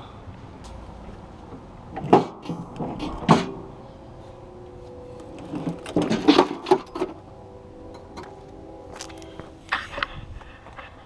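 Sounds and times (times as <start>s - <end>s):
metal clanking against metal: 5.4s - 7.2s.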